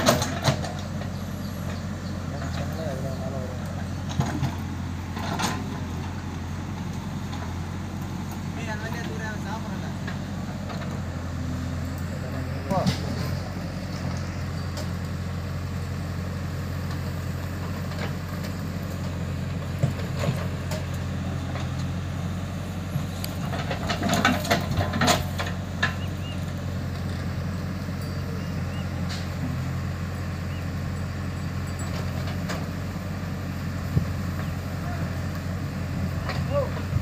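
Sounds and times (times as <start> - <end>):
loader clattering and knocks: 0.0 - 15.5, 16.7 - 37.0
diesel engines running: 0.0 - 37.0.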